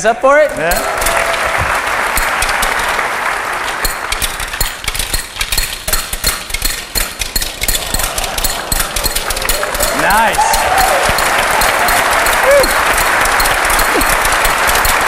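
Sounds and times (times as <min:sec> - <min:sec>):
audience cheering and applauding: 0:00.0 - 0:04.2, 0:07.8 - 0:15.0
ball bearings clicking: 0:00.3 - 0:01.2, 0:02.1 - 0:15.0.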